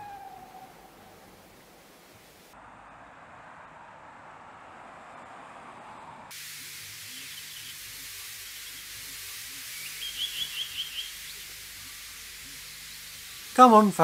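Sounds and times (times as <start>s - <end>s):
steady high hiss: 0.0s - 2.6s, 6.3s - 14.0s
bird chirping: 7.0s - 13.6s.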